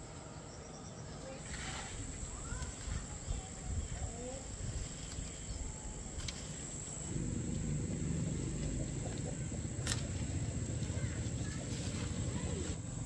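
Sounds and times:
low rumbling noise: 0:05.6 - 0:13.0.

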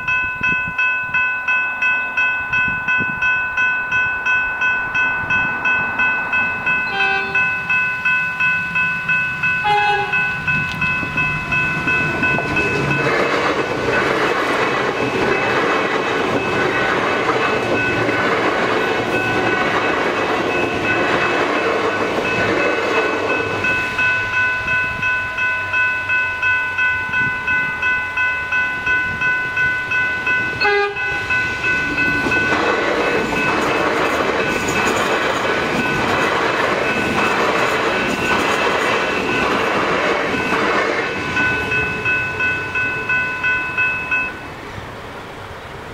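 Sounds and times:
level crossing bells ringing: 0:00.0 - 0:44.5
train wheels rumbling on rails: 0:00.0 - 0:45.9.

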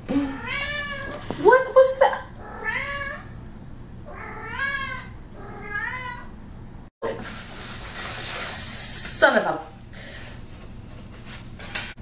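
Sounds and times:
cat meowing: 0:00.2 - 0:01.1, 0:02.4 - 0:03.3, 0:04.1 - 0:06.3.

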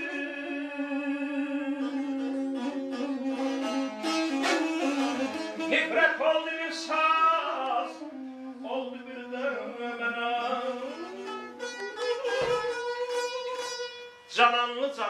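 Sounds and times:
reed pipe with sliding notes: 0:00.0 - 0:14.0
plucked lute melody: 0:10.9 - 0:14.0.

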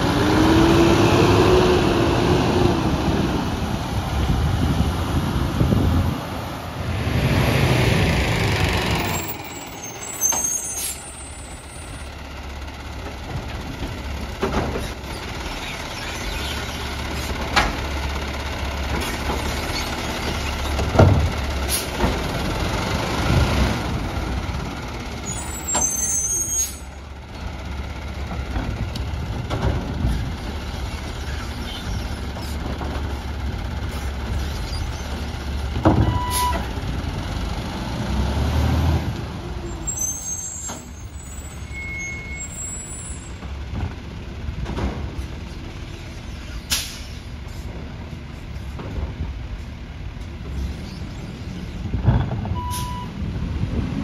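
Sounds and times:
garbage truck running: 0:00.0 - 0:54.0
air brakes hissing: 0:09.3 - 0:11.5, 0:21.6 - 0:22.0, 0:36.1 - 0:36.6, 0:46.6 - 0:47.7
hydraulic arm clunks and knocks: 0:20.7 - 0:21.4.

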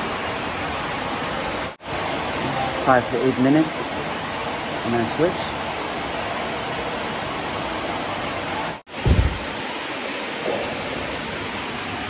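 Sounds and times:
running water: 0:00.0 - 0:12.0
low thump: 0:09.0 - 0:09.5.

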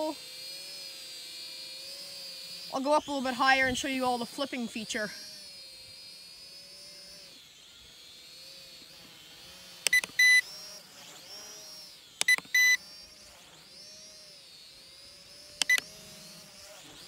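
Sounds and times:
quadcopter motors whining: 0:00.0 - 0:17.0
controller beeps: 0:09.9 - 0:10.4, 0:12.2 - 0:12.8, 0:15.6 - 0:15.9.

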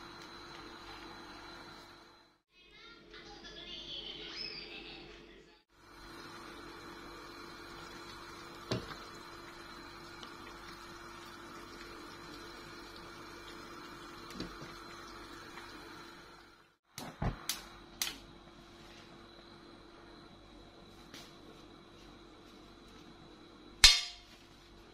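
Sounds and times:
soup simmering: 0:05.8 - 0:16.6.

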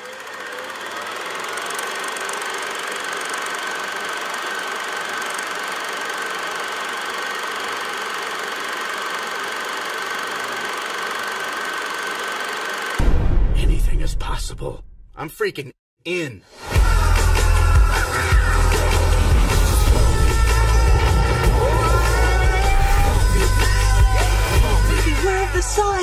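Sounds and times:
film projector clatter and whine: 0:00.0 - 0:13.0.

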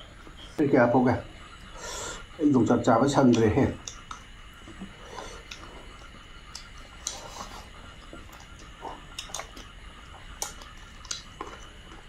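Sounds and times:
mouth clicks: 0:03.3 - 0:04.3, 0:08.3 - 0:11.5
chewing and lip smacks: 0:03.3 - 0:12.0.

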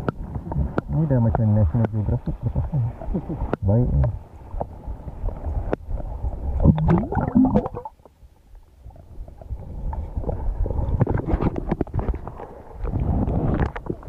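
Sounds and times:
muffled underwater sloshing: 0:00.0 - 0:14.0.

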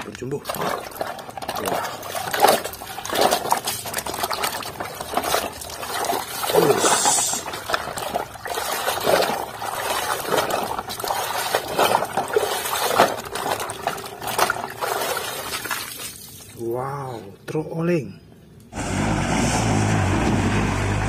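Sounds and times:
muddy water sloshing and splashing: 0:00.0 - 0:17.0.

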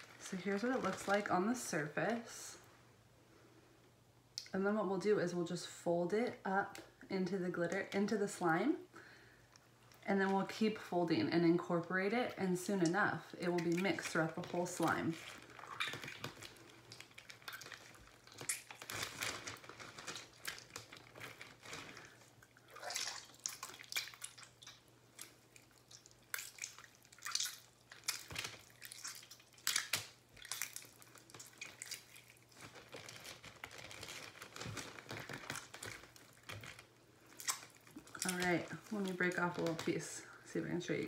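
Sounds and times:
slime squelching by hand: 0:12.0 - 0:40.2.

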